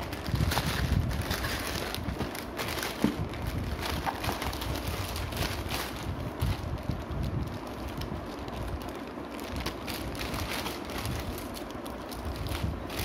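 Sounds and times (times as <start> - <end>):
plastic mailer bag crinkling: 0.0 - 13.0.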